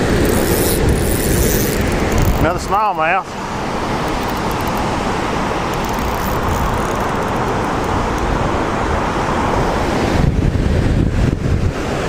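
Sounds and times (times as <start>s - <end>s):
wind buffeting microphone: 0.0s - 2.8s, 3.5s - 12.0s
water rushing from dam gates: 0.0s - 5.9s.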